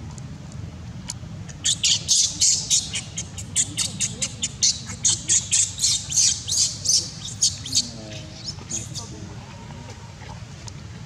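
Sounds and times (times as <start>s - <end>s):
baby monkey screaming: 1.6s - 9.1s.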